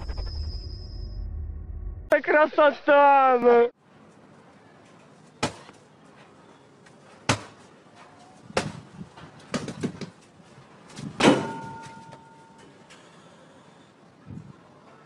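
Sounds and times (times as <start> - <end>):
blows thudding on punching bag: 8.5 - 10.1.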